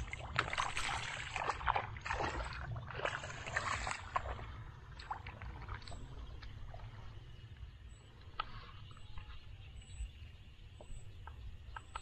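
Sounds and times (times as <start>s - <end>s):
water sloshing and splashing: 0.0s - 7.6s.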